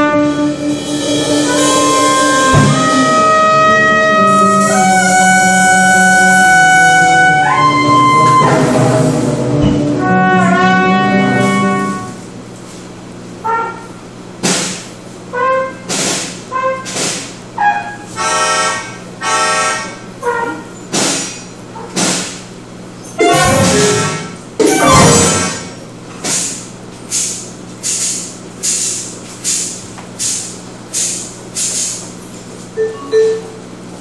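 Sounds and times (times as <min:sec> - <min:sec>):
acoustic ensemble music: 0:00.0 - 0:12.8, 0:23.2 - 0:25.9.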